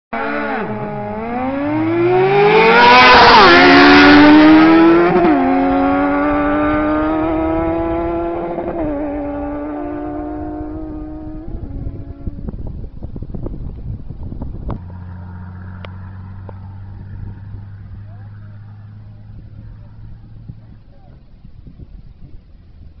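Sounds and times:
motorcycle engines revving hard: 0.2 - 12.4.

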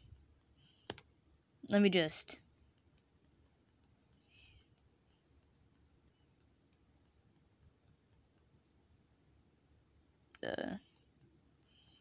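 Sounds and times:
faint ticking: 2.4 - 8.6.

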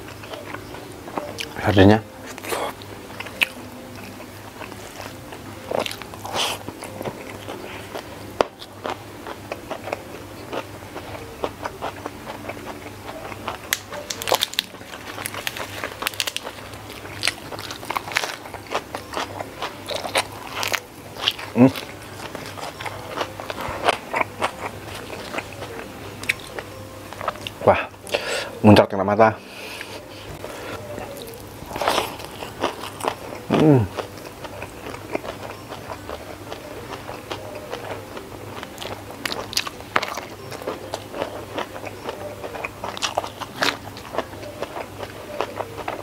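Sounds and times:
biting and chewing food: 0.0 - 28.6, 29.6 - 46.0
crisp clicks and wet smacks: 13.7 - 18.8.

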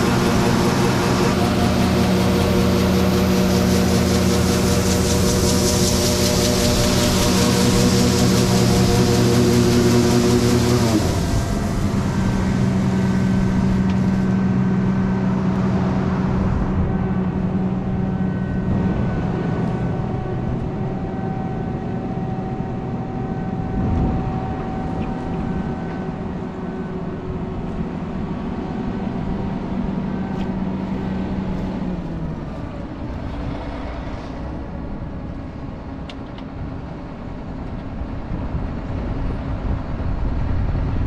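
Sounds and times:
diesel engine humming: 0.0 - 41.0.

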